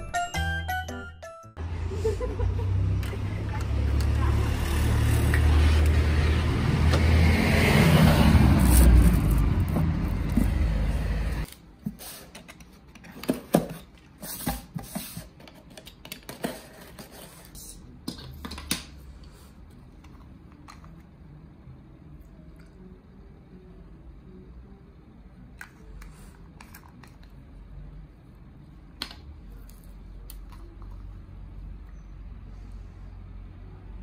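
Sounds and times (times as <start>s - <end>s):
road traffic rumble: 1.6s - 11.5s.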